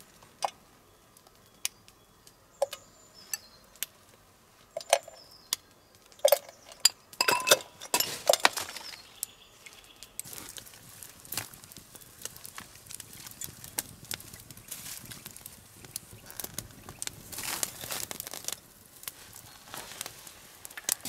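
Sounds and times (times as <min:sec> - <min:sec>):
sharp clicks and clinks: 0:06.2 - 0:08.6.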